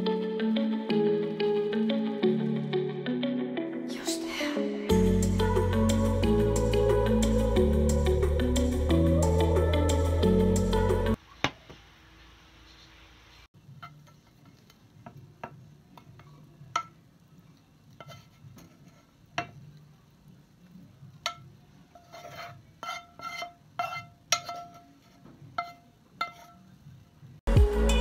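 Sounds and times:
loud music: 4.7 - 11.2, 27.5 - 28.0.

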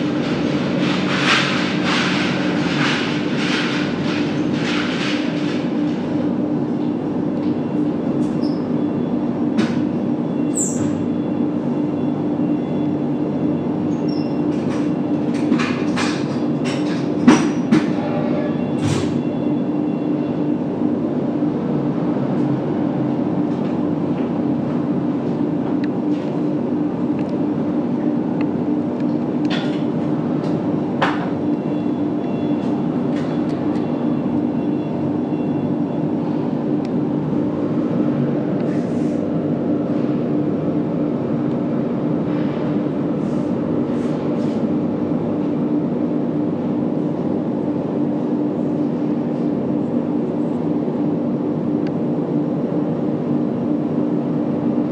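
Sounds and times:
low humming drone: 16.6 - 54.9.

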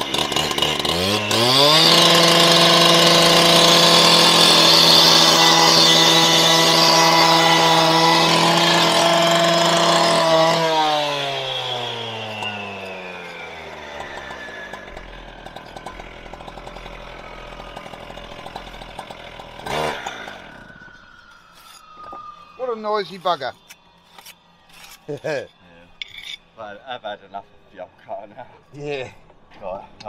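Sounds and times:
disc cutter whining: 2.6 - 16.1.

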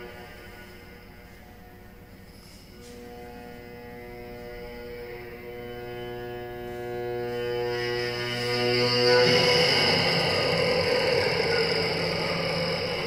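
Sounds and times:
cello bowed note: 0.0 - 13.0.

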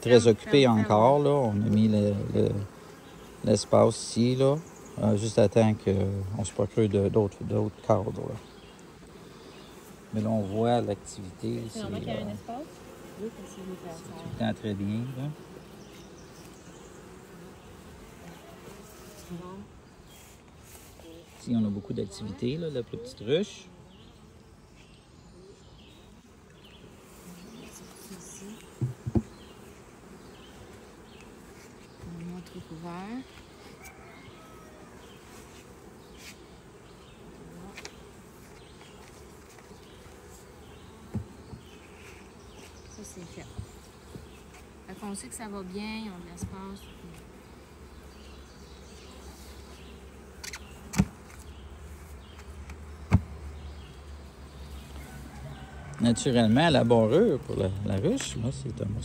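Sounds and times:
honeybees buzzing: 0.0 - 59.0
sharp knocks: 28.8 - 29.3.

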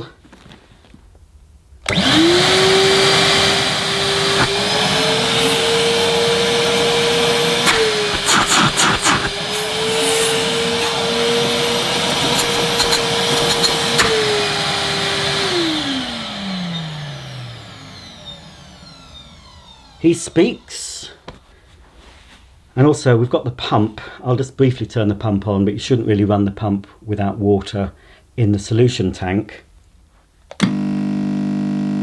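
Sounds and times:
vacuum cleaner motor whining: 1.8 - 21.4, 30.6 - 32.0
clicks: 7.6 - 9.4, 12.0 - 14.4.

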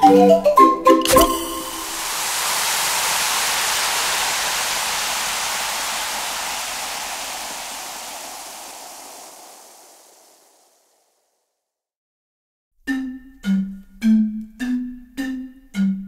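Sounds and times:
beer fizzing: 1.0 - 11.1.

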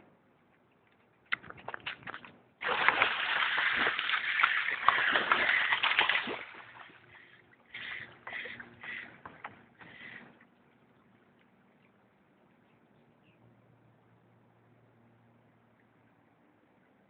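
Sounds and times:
crocodiles thrashing and splashing in water: 1.9 - 10.3.

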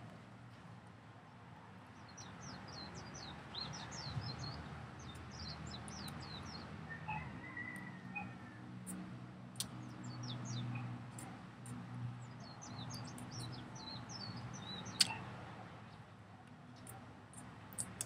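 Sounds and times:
small birds chirping: 2.0 - 7.2, 9.6 - 16.1, 16.7 - 18.0.

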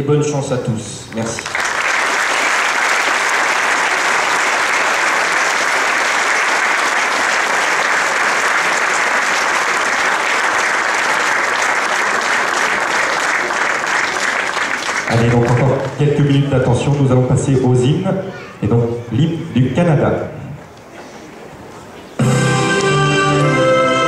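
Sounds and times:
crowd applauding: 1.2 - 16.0.

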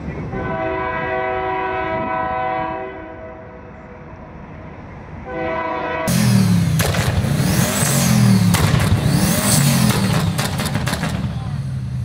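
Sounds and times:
train horn blast: 0.3 - 3.7, 5.2 - 6.6
loud car engine: 6.1 - 12.0.

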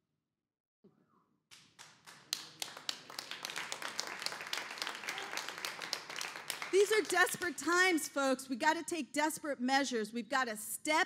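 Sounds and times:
crowd clapping: 1.5 - 8.2.

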